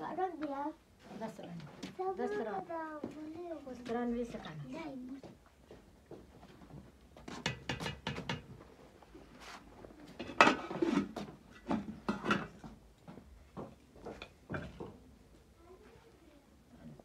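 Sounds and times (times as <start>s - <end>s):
pots and dishes clattering: 7.4s - 8.6s, 10.2s - 12.8s, 14.1s - 15.0s.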